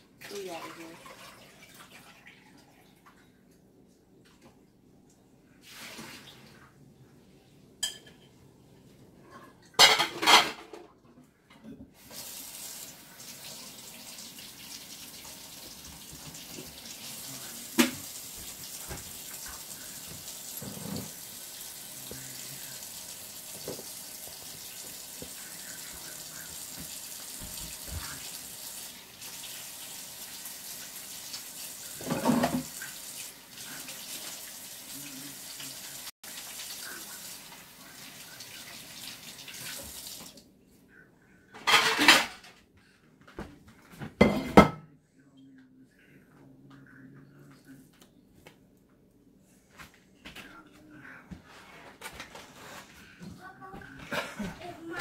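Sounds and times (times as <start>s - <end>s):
faucet water running into sink: 0.2s - 3.0s, 12.0s - 40.4s.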